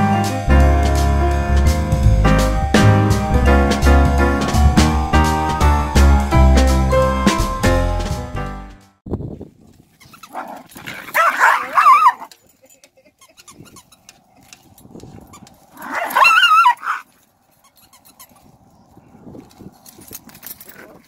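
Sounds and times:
small dogs barking and yapping: 10.0s - 12.5s, 15.2s - 18.6s.

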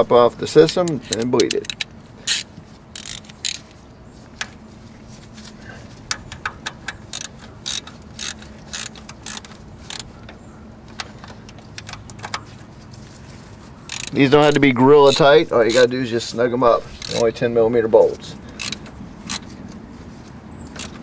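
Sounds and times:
ratchet wrench clicking: 0.8s - 3.6s, 6.1s - 10.1s, 13.9s - 15.9s, 16.9s - 17.3s, 18.6s - 19.5s, 20.7s - 21.0s.

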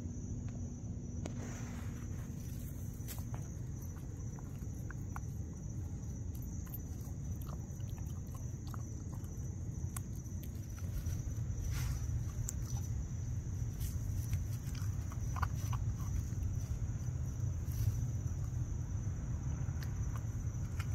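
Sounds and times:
night insects trilling: 0.0s - 20.9s
puppy rustling dirt and leaves: 1.4s - 7.8s, 10.2s - 18.9s.

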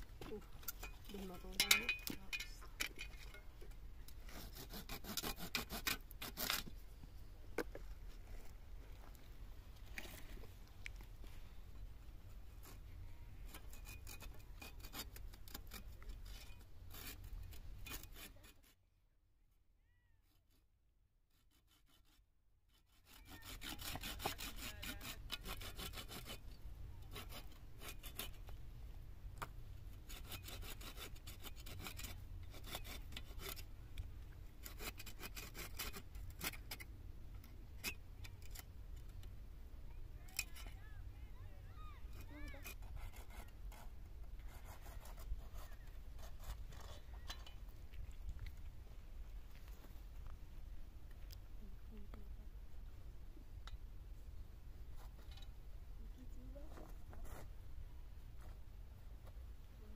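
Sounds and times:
hand saw cutting branches: 4.2s - 6.8s, 13.5s - 18.8s, 21.3s - 26.4s, 27.0s - 28.6s, 30.0s - 33.7s, 34.6s - 36.9s, 42.1s - 47.5s.

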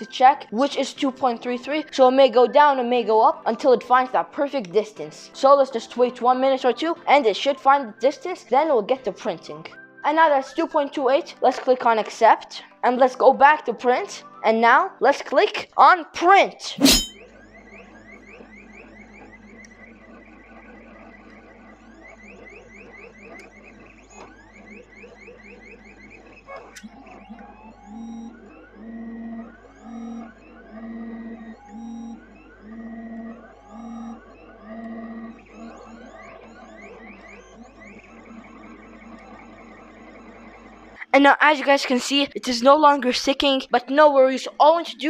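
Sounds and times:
stepper motors whining: 16.8s - 41.0s.

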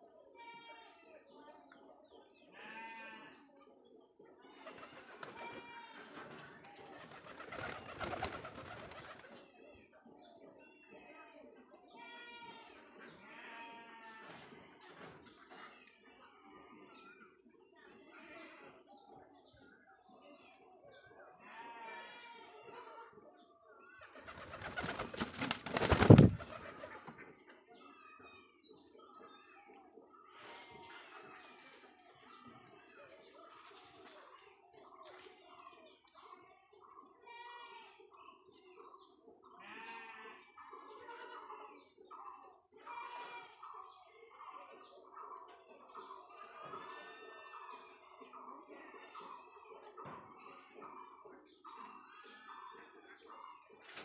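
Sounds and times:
pigeon wings flapping: 7.1s - 9.2s, 24.3s - 26.9s
pigeon calling: 24.2s - 27.1s.

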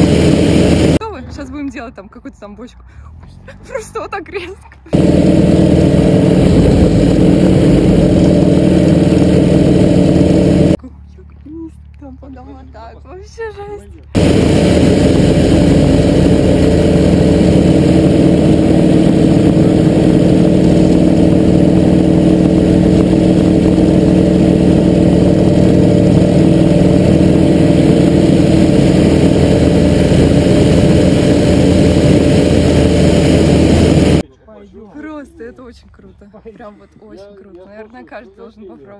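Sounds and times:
plane engine drone: 0.0s - 1.0s, 4.9s - 10.8s, 14.2s - 34.2s
rushing air noise: 0.0s - 1.0s, 5.0s - 10.8s, 14.2s - 34.2s.

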